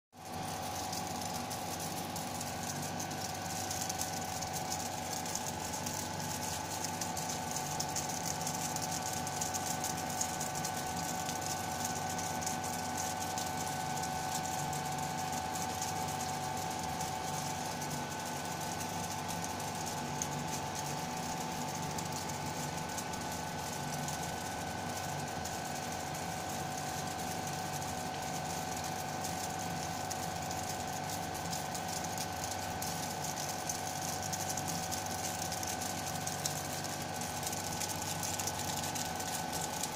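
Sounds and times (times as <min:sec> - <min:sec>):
ice machine hum and whine: 0:00.1 - 0:39.9.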